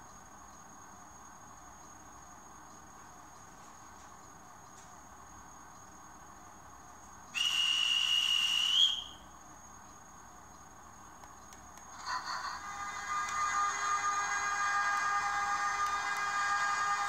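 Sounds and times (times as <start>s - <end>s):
model locomotive whistle: 7.4s - 9.2s.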